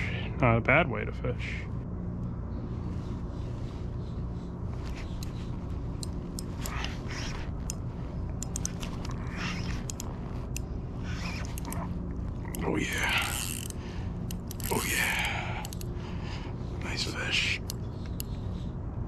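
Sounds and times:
low background rumble: 0.0 - 19.0
fishing reel clicks: 8.4 - 11.8, 12.5 - 15.9.

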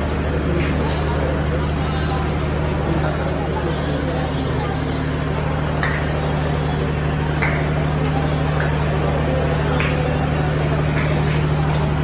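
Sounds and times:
crowd murmur: 0.0 - 12.0
train diesel engine idling: 0.0 - 12.0.

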